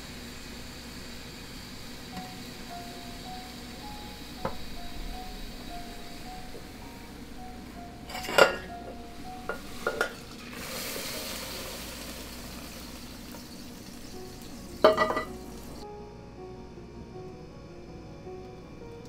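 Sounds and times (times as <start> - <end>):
frying pan clanking on burner grate: 9.5 - 10.2, 14.8 - 15.4
water pouring into metal jug: 9.8 - 15.8.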